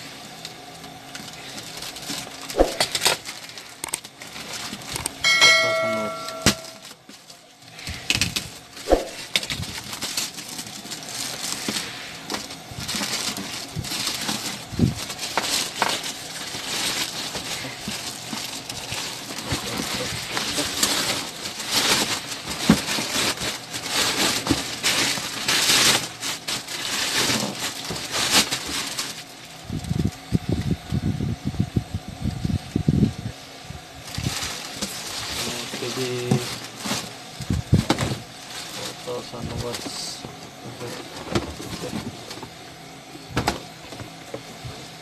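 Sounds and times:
plastic bag crinkling: 0:00.6 - 0:30.1, 0:34.0 - 0:40.2.

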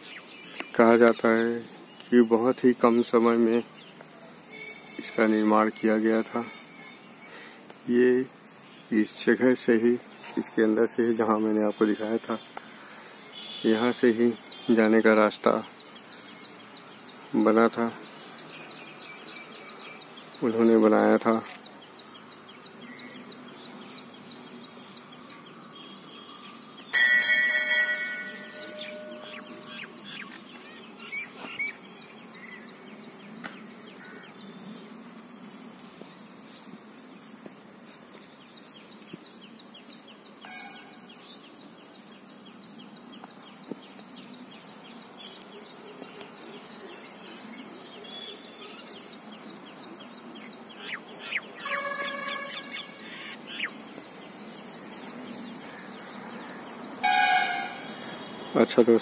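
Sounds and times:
insects droning: 0:00.0 - 0:59.0
loud multi-pitched tone: 0:51.6 - 0:52.7, 0:57.0 - 0:57.9.

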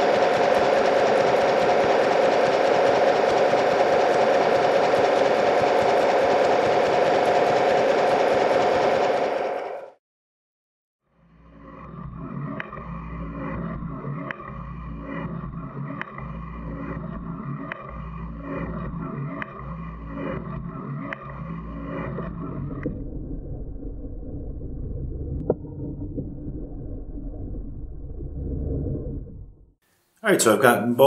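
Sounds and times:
metal shaper running: 0:00.0 - 0:09.9
motor hum: 0:00.0 - 0:10.0, 0:11.2 - 0:29.8.

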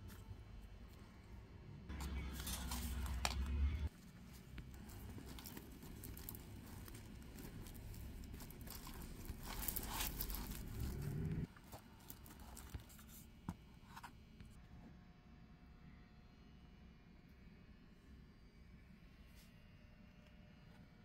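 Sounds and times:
low rumble: 0:01.9 - 0:11.5
fabric rustling and crinkling: 0:01.9 - 0:13.9.

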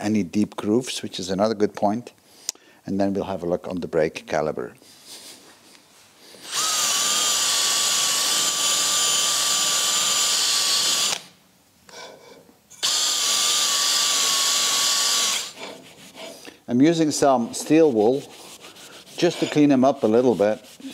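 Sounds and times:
power drill wire brush scrubbing: 0:06.4 - 0:11.2, 0:12.8 - 0:16.4, 0:17.3 - 0:20.9.

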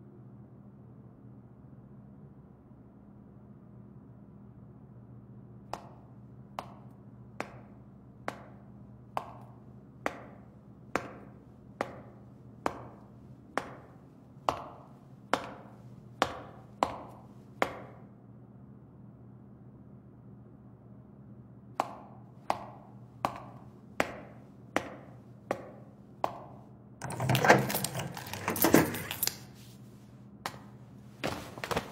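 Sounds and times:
footsteps on concrete floor: 0:06.6 - 0:18.0, 0:23.3 - 0:31.9.

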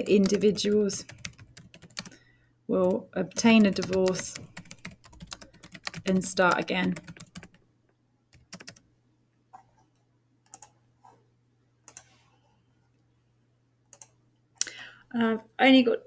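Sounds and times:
computer keyboard keystrokes: 0:00.0 - 0:02.2, 0:02.8 - 0:07.6, 0:08.3 - 0:08.8, 0:10.5 - 0:10.8, 0:11.9 - 0:12.1, 0:13.9 - 0:14.2.

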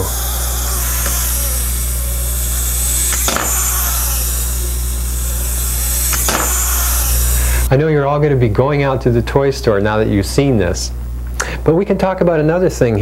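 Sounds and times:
wind-up toy motor whirring: 0:00.0 - 0:07.7.

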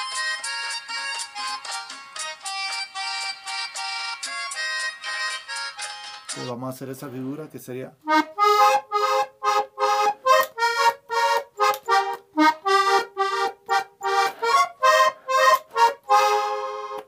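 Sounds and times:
button accordion playing chords: 0:00.0 - 0:06.5, 0:08.0 - 0:17.0.

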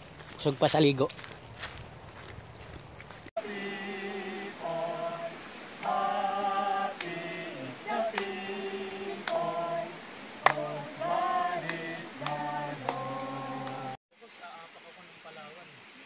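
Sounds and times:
choir singing held chords: 0:03.4 - 0:14.0.

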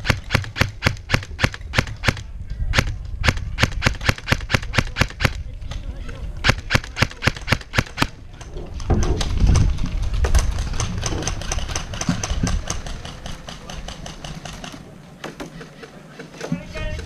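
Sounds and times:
fast irregular clicks: 0:06.4 - 0:14.8.

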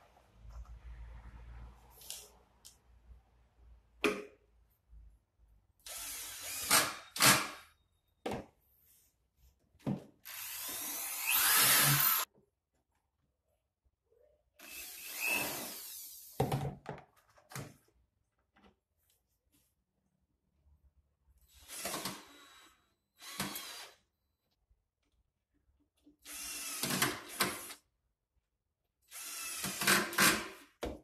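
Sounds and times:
electric drill running: 0:10.3 - 0:12.2, 0:23.2 - 0:24.0.

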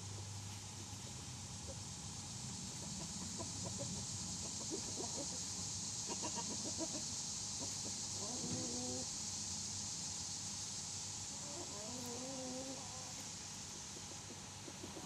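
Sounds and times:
steady hiss: 0:00.0 - 0:15.0
chicken clucking: 0:02.8 - 0:09.1, 0:11.3 - 0:13.2, 0:13.9 - 0:15.0.

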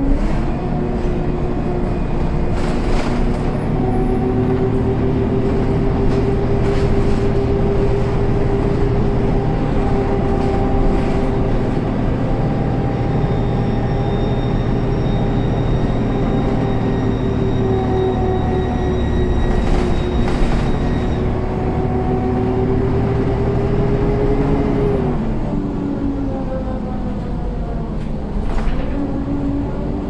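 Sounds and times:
bus engine running: 0:00.0 - 0:30.0
gearbox whine: 0:12.5 - 0:22.6.

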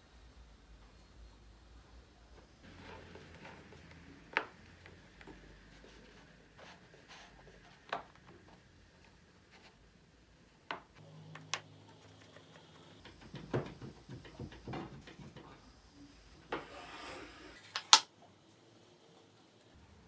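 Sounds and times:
wood scraping: 0:11.9 - 0:18.0
wooden knocks: 0:13.0 - 0:15.6.

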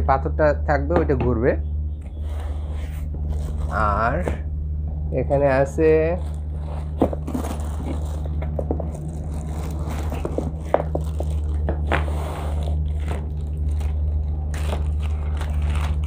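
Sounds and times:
steady low hum: 0:00.0 - 0:16.0
cardboard scraping and rustling: 0:02.2 - 0:04.3, 0:06.2 - 0:16.0
plastic bag crinkling: 0:03.2 - 0:04.0, 0:06.0 - 0:16.0.

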